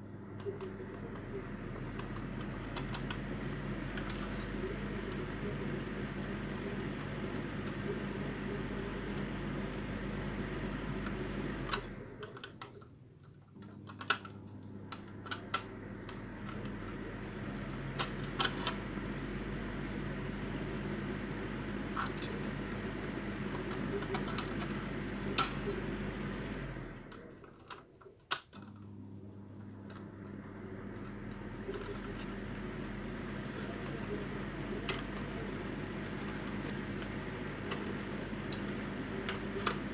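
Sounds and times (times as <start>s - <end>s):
low electric hum: 0.0s - 39.9s
plastic parts clicking: 27.1s - 28.7s.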